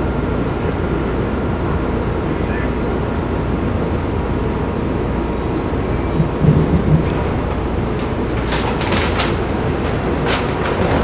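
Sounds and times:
subway train running noise: 0.0s - 11.0s
thuds: 6.1s - 11.0s.

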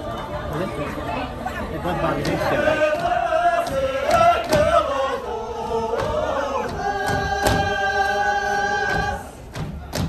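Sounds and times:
group of voices chanting: 1.8s - 9.4s.

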